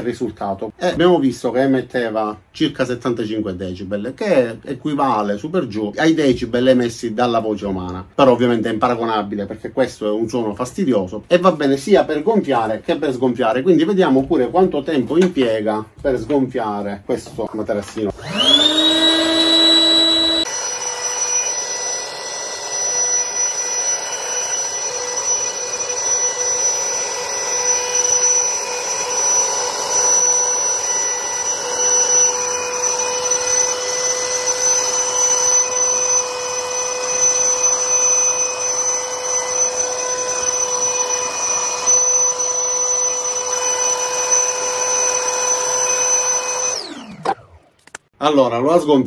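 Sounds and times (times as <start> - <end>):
air pump whining: 17.2 - 48.0.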